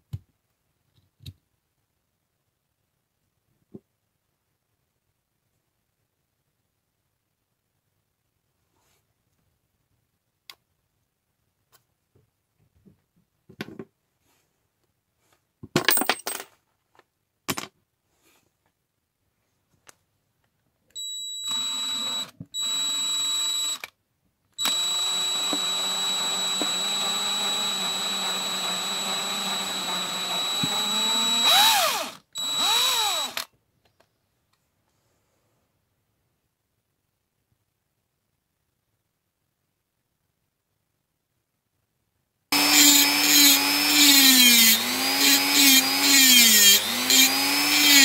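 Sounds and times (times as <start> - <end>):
electric drill whining: 21.0 - 23.9, 24.6 - 33.5, 42.5 - 48.0.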